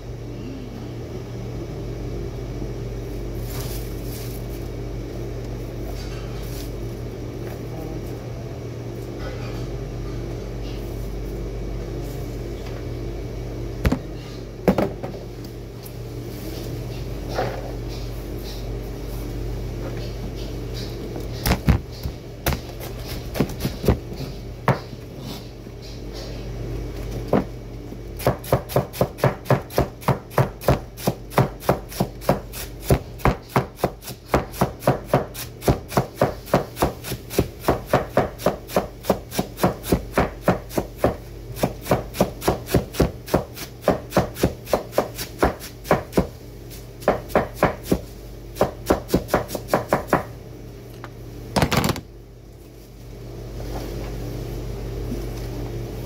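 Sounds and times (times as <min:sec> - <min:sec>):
knife chopping on wooden board: 0:28.2 - 0:46.3, 0:47.0 - 0:48.0, 0:48.6 - 0:50.3.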